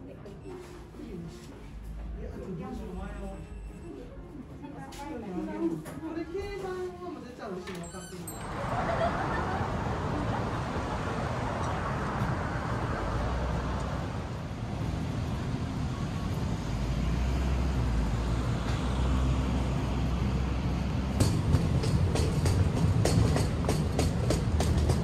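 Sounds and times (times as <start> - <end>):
train rumbling: 8.3 - 25.0
wheels clacking over rail joints: 21.1 - 25.0.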